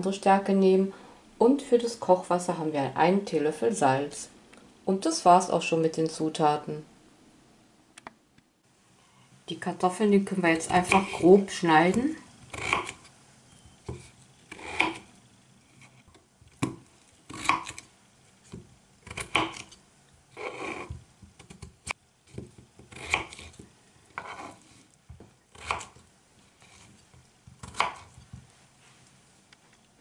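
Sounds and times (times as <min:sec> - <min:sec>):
knife cutting potatoes on board: 0:10.5 - 0:13.1, 0:13.9 - 0:15.1, 0:15.8 - 0:17.9, 0:18.5 - 0:26.0, 0:26.6 - 0:28.5.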